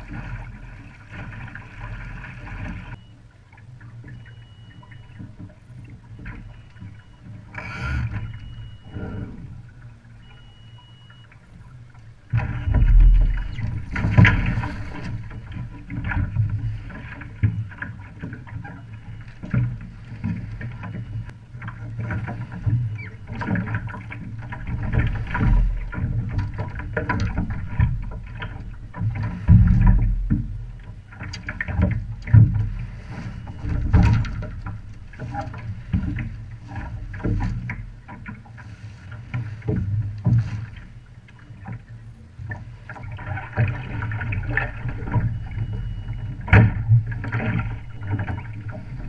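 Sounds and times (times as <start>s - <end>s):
wind and water rumbling: 0.0s - 49.0s
hull and rigging knocks: 11.9s - 49.0s.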